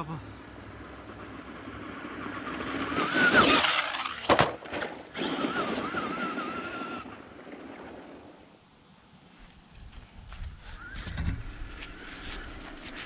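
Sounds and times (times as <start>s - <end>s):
rc truck motor whining: 0.8s - 8.1s, 10.8s - 13.0s
rc truck landing knock: 4.0s - 5.0s.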